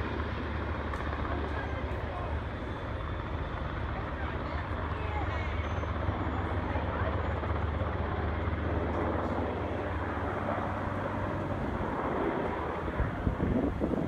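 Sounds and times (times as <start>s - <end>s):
distant aircraft droning: 0.0s - 14.0s
wind buffeting microphone: 9.0s - 14.0s.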